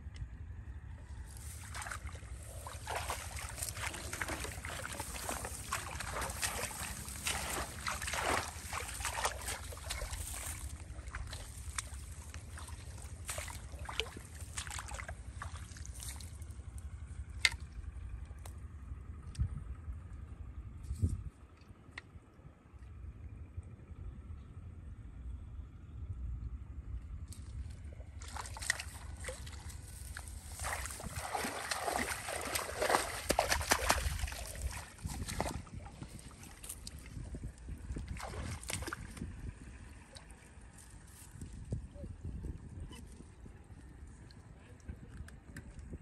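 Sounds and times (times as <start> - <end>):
shallow water splashing: 1.3 - 17.7, 27.8 - 41.3.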